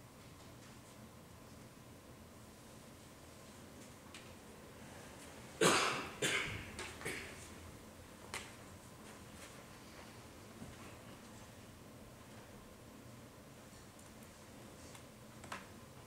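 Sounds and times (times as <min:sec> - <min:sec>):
person coughing: 0:05.6 - 0:07.4.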